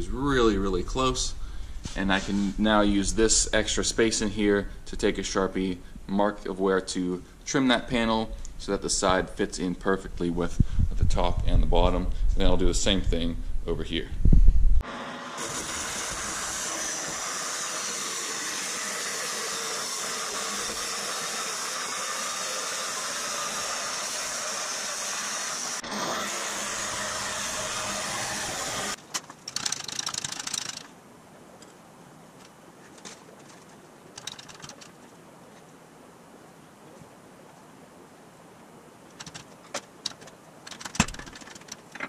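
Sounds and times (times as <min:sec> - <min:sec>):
faint workshop noise: 0:00.0 - 0:03.5
band saw cutting metal: 0:14.8 - 0:29.0
irregular rattling: 0:29.0 - 0:30.9, 0:32.4 - 0:35.1, 0:39.1 - 0:42.0.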